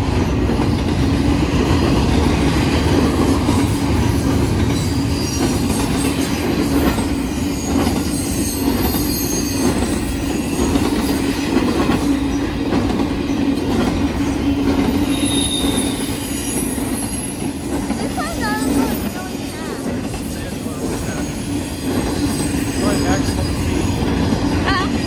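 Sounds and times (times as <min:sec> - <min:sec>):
train wheels rumbling on rail: 0:00.0 - 0:25.0
high wheel squeals: 0:04.7 - 0:11.4, 0:14.2 - 0:24.2.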